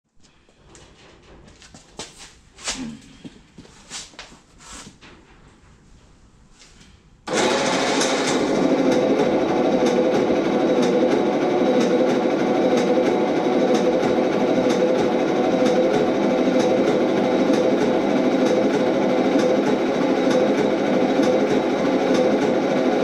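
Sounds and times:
starter motor cranking engine: 7.3 - 23.0.

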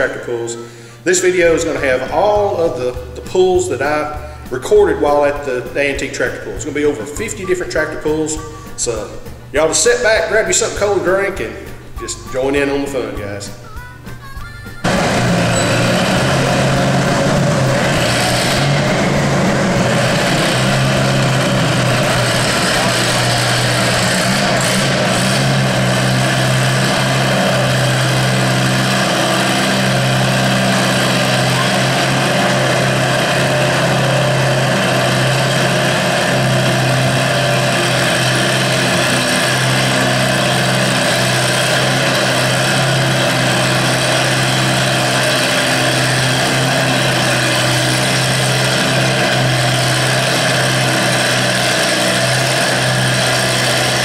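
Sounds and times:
tractor engine running under load: 0.0 - 12.8, 14.3 - 54.0.

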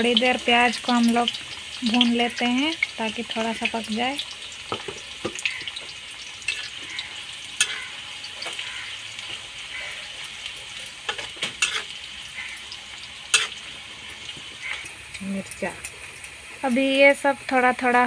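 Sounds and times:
onions sizzling in hot oil: 0.0 - 18.0
metal spatula scraping a pan: 6.4 - 12.7, 13.3 - 15.0.

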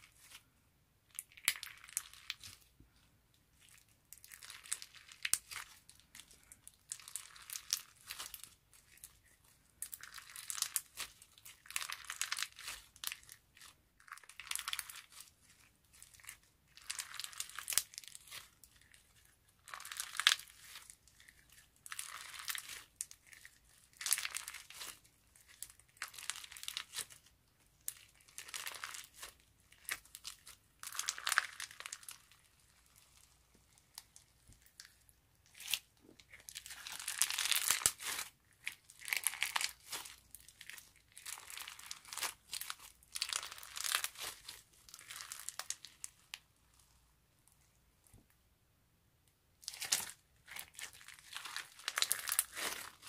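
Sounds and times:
slime squeezed by hand: 49.6 - 53.0.

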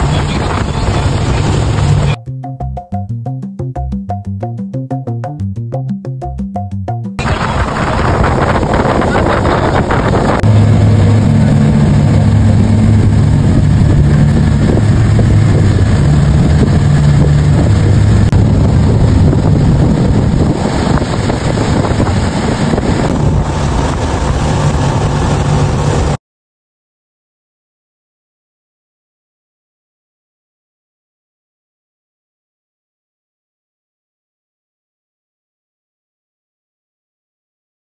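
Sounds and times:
motorboat engine drone: 0.0 - 2.2, 7.2 - 26.2
wind on microphone: 0.0 - 2.2, 7.2 - 26.2
water spray off hull: 7.2 - 26.2.

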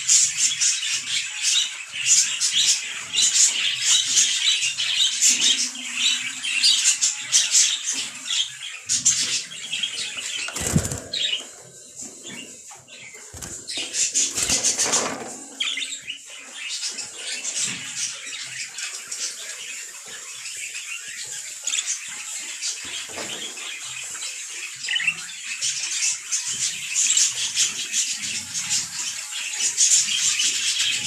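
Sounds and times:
birds chattering: 0.0 - 31.0
birds flapping wings: 10.4 - 11.5.

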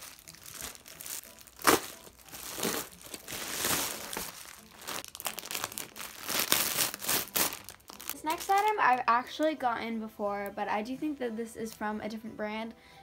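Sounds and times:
loud plastic crackle: 0.0 - 9.0
plastic packaging crinkling and tearing: 0.0 - 9.0.

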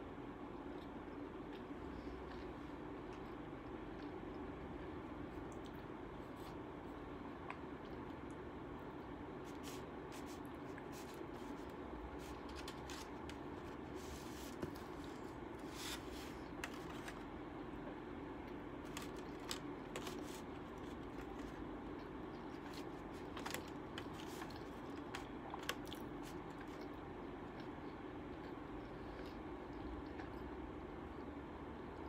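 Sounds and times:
steady background hum: 0.0 - 32.0
chewing: 0.6 - 4.5, 18.9 - 31.3.

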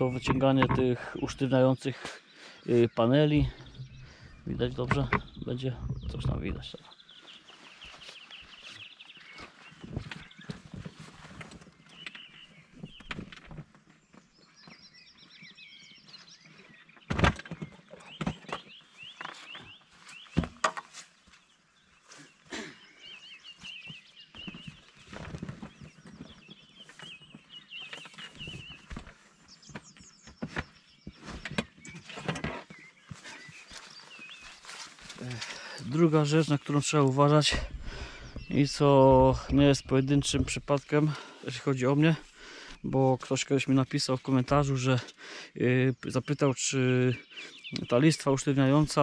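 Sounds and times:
small birds chirping: 0.0 - 49.0.

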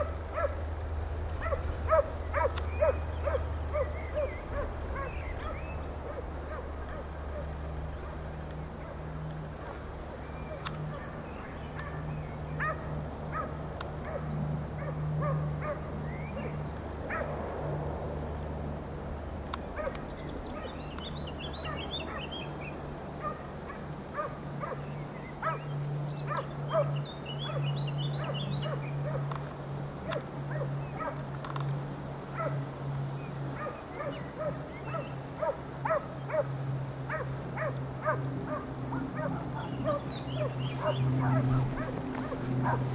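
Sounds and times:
hounds barking and yelping: 0.0 - 17.4, 19.7 - 22.5, 23.2 - 31.6, 32.3 - 32.6, 33.5 - 42.9
songbird chirping: 1.3 - 17.2, 19.5 - 23.4, 24.6 - 42.9.

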